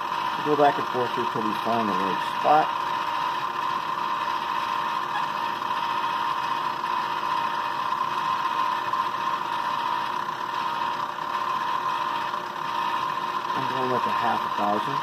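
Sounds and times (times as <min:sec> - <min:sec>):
milling machine whining: 0:00.0 - 0:15.0.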